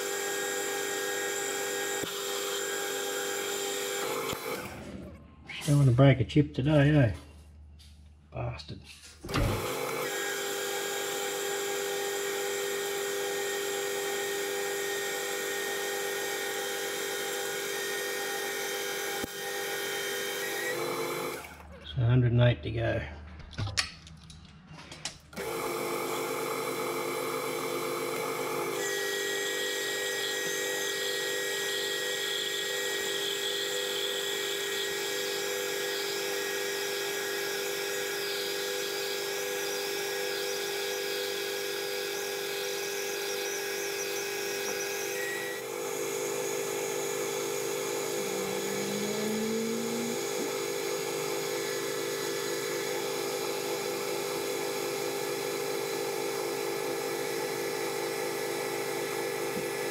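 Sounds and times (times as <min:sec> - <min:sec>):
metal lathe running: 0:00.0 - 0:04.8, 0:09.4 - 0:21.5, 0:25.4 - 0:59.9
high-pitched tone: 0:47.9 - 0:50.5.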